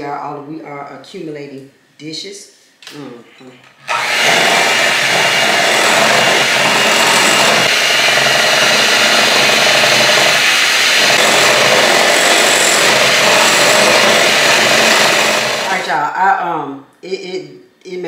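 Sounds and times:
electric mixer beating batter: 0:03.9 - 0:16.0.

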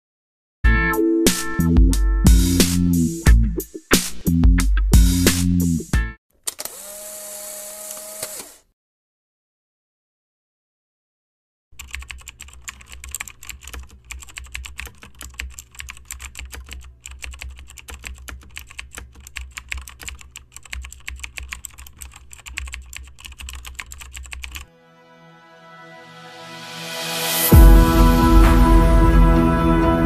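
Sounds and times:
keyboard typing clicks: 0:11.8 - 0:24.6.

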